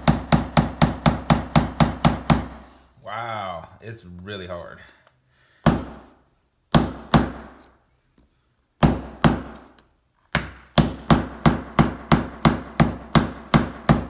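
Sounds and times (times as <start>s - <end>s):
hammer striking screwdriver on stone: 6.8s - 12.2s.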